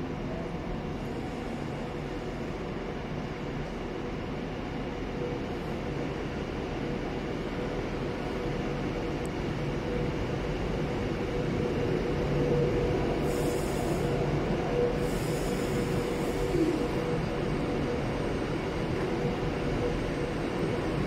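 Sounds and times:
constant hum: 0:00.0 - 0:21.0.

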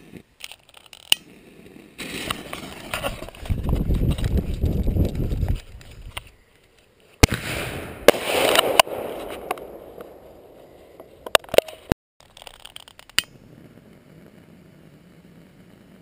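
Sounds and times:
firework cracks and pops: 0:00.0 - 0:06.0, 0:07.2 - 0:10.4, 0:11.5 - 0:16.0
scattered crackles: 0:00.0 - 0:16.0.

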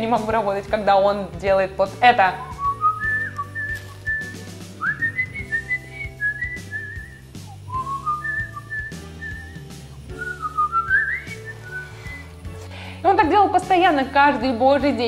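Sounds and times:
man whistling a tune: 0:02.4 - 0:12.4.

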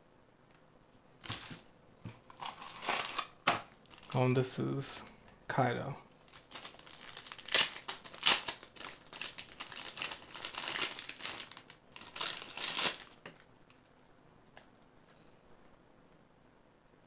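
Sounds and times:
plastic packaging crinkling: 0:01.2 - 0:01.6, 0:02.3 - 0:04.3, 0:06.2 - 0:13.8.

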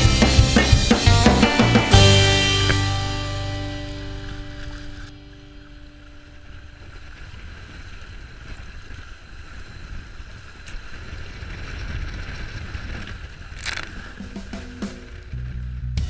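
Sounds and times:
water rushing along a hull: 0:03.8 - 0:15.4
wind buffeting microphone: 0:05.5 - 0:15.7.

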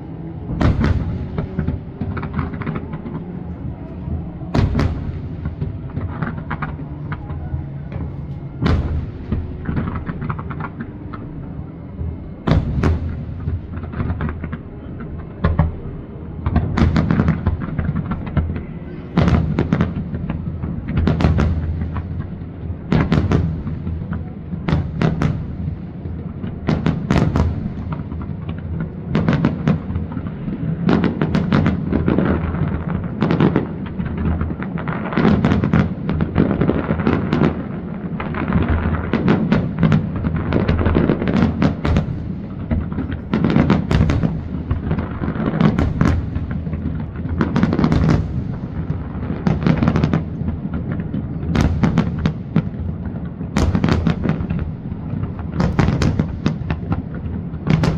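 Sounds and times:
low rumble: 0:00.0 - 0:20.9
firework bangs: 0:00.0 - 0:57.9.

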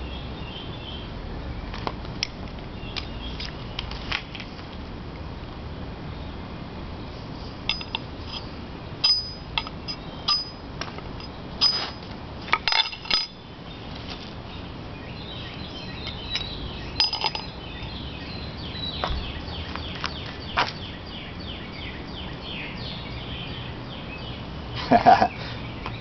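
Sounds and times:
birds chirping: 0:02.7 - 0:04.0, 0:06.1 - 0:12.0, 0:12.6 - 0:26.0.

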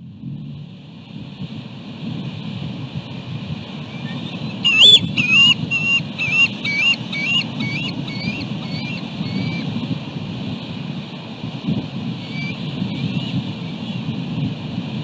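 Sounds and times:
low rumble of wind: 0:00.0 - 0:15.0
eagle chittering calls: 0:03.9 - 0:09.6, 0:12.2 - 0:13.3.

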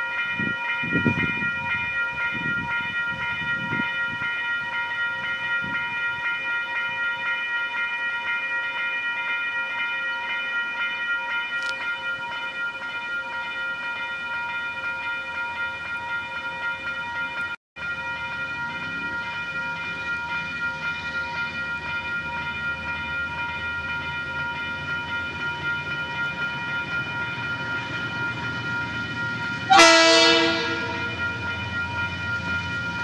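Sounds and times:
level crossing bell ringing: 0:00.0 - 0:33.0.

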